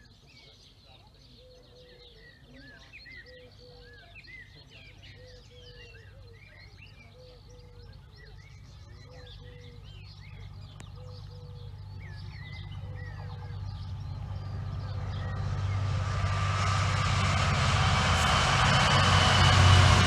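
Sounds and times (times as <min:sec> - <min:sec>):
songbirds chirping and warbling: 0:00.0 - 0:17.2
diesel locomotive rumble: 0:07.4 - 0:20.0.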